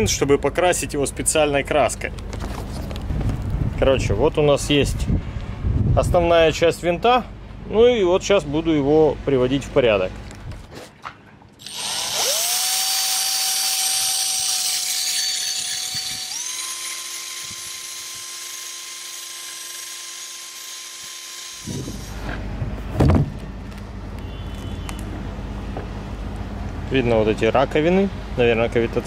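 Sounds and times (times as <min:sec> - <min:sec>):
drill motor whine: 0:11.6 - 0:22.2
wire brush scratching metal: 0:13.5 - 0:18.1.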